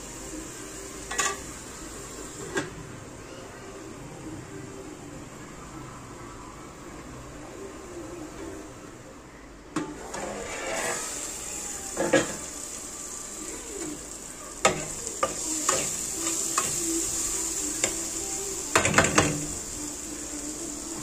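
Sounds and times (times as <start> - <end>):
spatula scraping a pan: 10.0 - 11.4
sauce sizzling in oil: 10.0 - 21.0.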